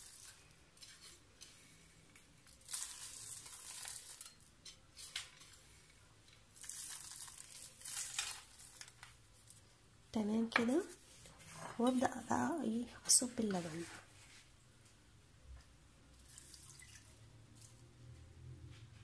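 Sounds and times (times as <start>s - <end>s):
fingers crunching dry pastry: 2.4s - 4.4s, 6.6s - 9.2s.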